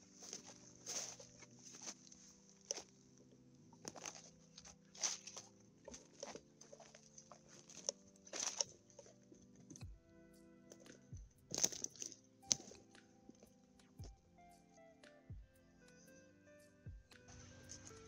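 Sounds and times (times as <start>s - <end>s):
footsteps through long grass: 0.0s - 3.1s, 3.7s - 10.0s, 10.8s - 13.5s, 17.3s - 18.0s.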